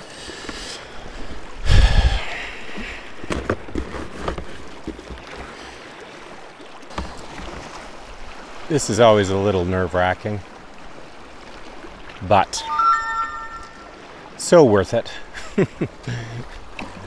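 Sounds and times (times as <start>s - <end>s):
water lapping against a kayak: 0.0s - 12.3s, 15.0s - 17.0s.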